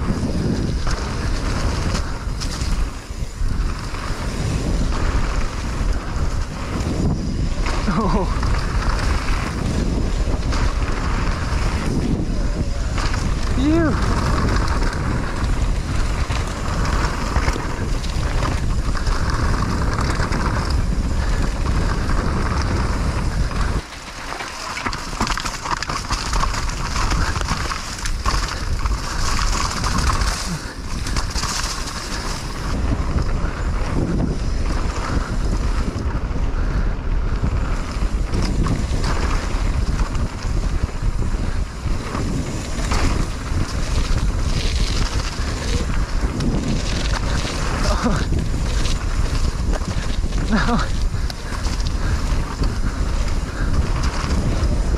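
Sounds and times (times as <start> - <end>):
bike rumbling over trail: 0.0 - 54.9
wind rushing over microphone: 0.0 - 54.9.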